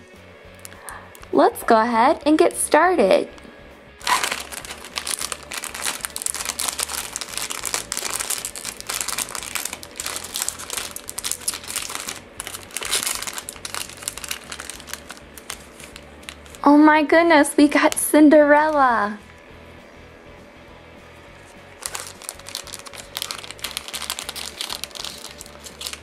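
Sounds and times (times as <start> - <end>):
plastic wrapper crinkling: 0.6 - 1.4, 4.0 - 16.7, 21.8 - 26.0.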